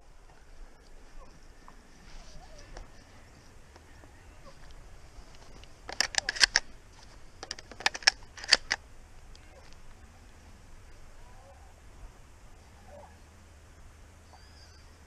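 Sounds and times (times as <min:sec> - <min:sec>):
shotgun handling clicks and knocks: 0:04.6 - 0:08.8.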